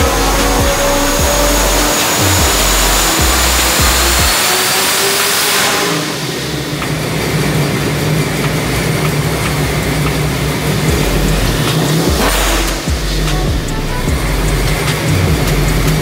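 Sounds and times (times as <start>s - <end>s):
car engine running steadily: 0.0s - 16.0s
loud rushing hiss: 0.0s - 16.0s.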